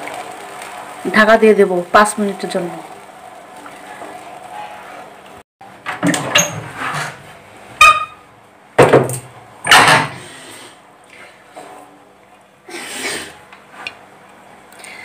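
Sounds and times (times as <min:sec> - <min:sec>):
spatula knocking metal pan: 0:07.8 - 0:08.2.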